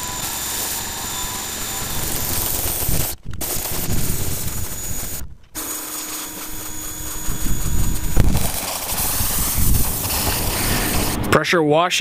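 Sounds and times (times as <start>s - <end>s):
pressure washer running: 0.0s - 11.3s
water spray hissing: 2.6s - 11.3s.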